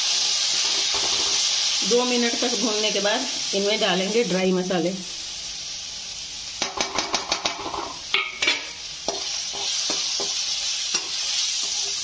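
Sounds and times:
food sizzling: 0:00.0 - 0:12.0
spatula scraping frying pan: 0:06.7 - 0:12.0.

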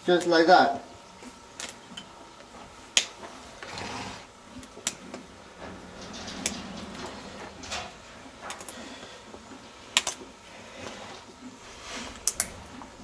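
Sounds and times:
hoof nippers snapping: 0:02.9 - 0:03.2, 0:04.6 - 0:05.3, 0:09.9 - 0:10.3, 0:12.1 - 0:12.8.

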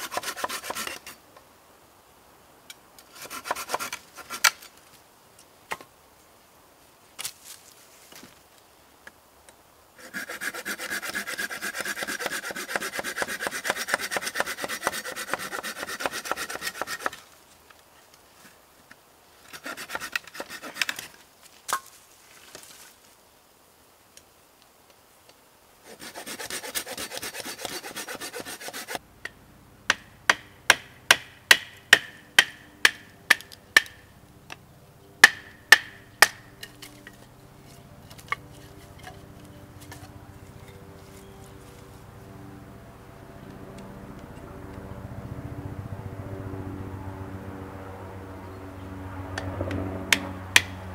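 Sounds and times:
knife scraping wood: 0:00.0 - 0:01.2, 0:03.0 - 0:04.8, 0:10.0 - 0:17.3, 0:19.5 - 0:21.2, 0:25.8 - 0:29.0
blade knocking on wood: 0:29.9 - 0:34.0, 0:35.2 - 0:36.4, 0:50.1 - 0:50.8.

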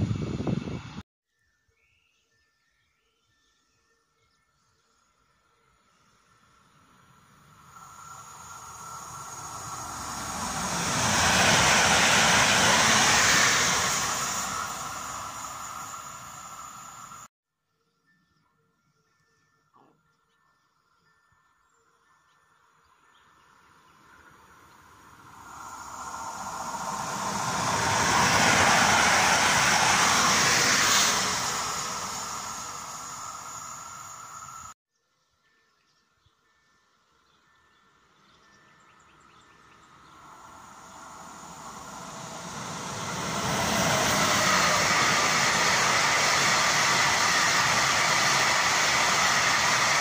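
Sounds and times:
electric train passing: 0:06.1 - 0:17.3, 0:22.9 - 0:34.8, 0:37.5 - 0:50.0.

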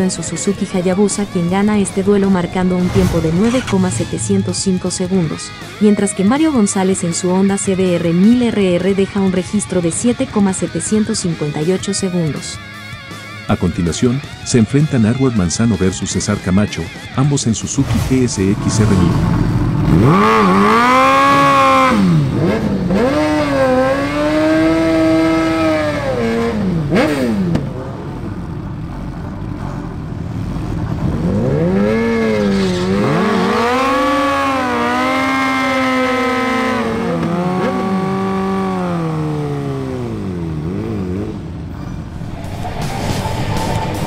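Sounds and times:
motorcycle engine revving hard: 0:18.9 - 0:28.3, 0:31.0 - 0:41.7.

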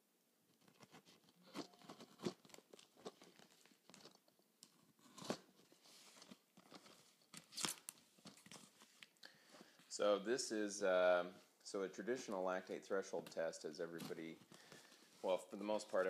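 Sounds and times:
tape and cardboard crackling: 0:00.6 - 0:09.2
tape ripping: 0:06.8 - 0:08.7.

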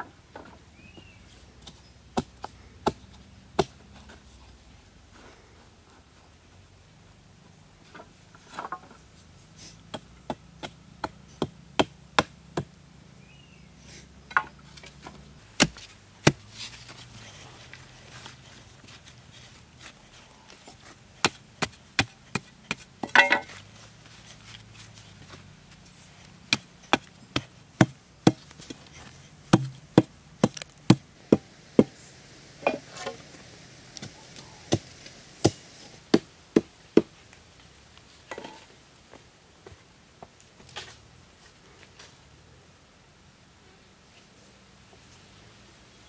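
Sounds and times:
wooden poles knocking: 0:21.2 - 0:23.6, 0:29.5 - 0:31.9
rough scrape: 0:31.8 - 0:36.0.

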